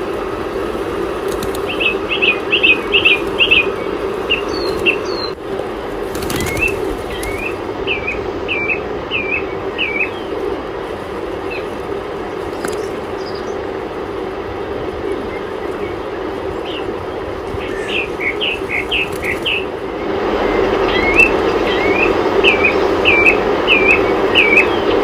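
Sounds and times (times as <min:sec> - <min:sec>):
wings flapping: 0:00.0 - 0:07.7, 0:10.2 - 0:22.0
birds chirping: 0:00.0 - 0:25.0
steady low hum: 0:00.0 - 0:25.0.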